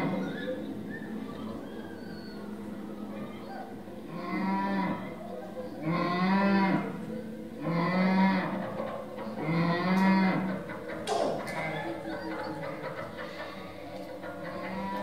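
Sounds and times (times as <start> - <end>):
cow mooing: 4.1 - 5.1, 5.8 - 7.0, 7.6 - 8.6, 9.4 - 10.6.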